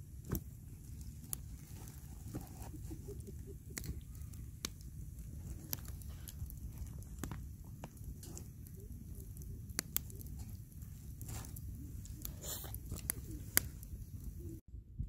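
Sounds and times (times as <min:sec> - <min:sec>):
wind rumble on microphone: 0:03.4 - 0:15.0.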